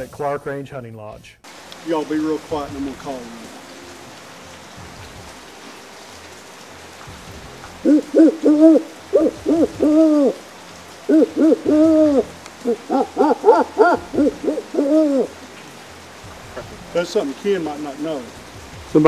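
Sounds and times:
steady hiss: 0.0 - 19.0
man hooting like an owl: 11.2 - 15.3.

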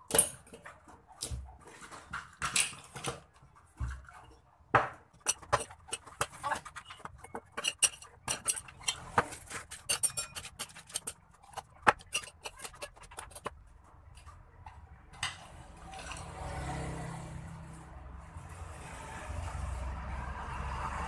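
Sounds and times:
plastic pipes clicking and clacking: 0.0 - 16.4.

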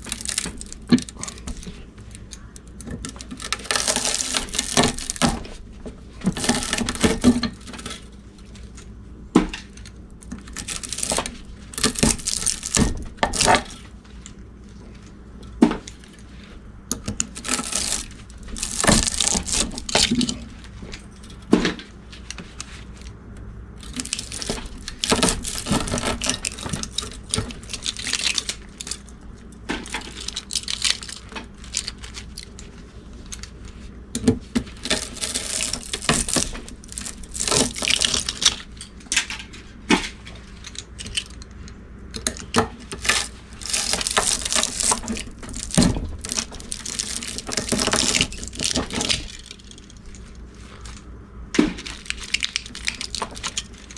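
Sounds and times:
wire scraping and tearing: 0.0 - 8.9, 9.6 - 15.2, 15.8 - 23.2, 23.8 - 33.9, 34.5 - 41.4, 42.1 - 53.9.

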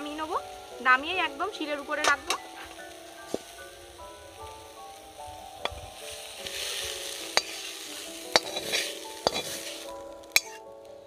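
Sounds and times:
metal spatula scraping pan: 6.4 - 10.6
spatula clinking against pan: 8.3 - 9.6.

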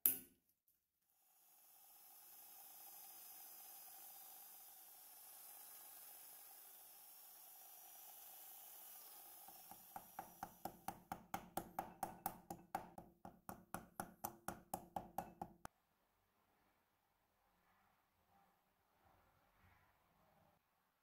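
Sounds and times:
padlock knocking on wooden bench: 10.5 - 15.6.

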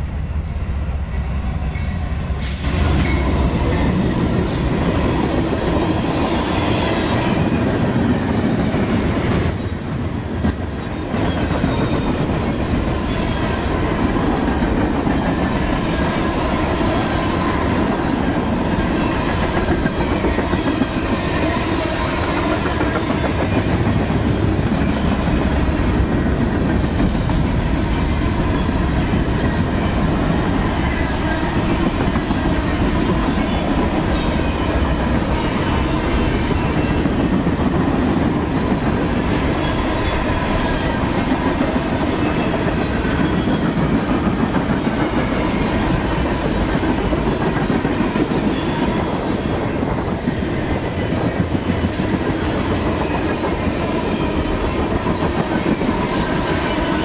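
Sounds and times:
freight train wheels on rails: 0.0 - 57.0.

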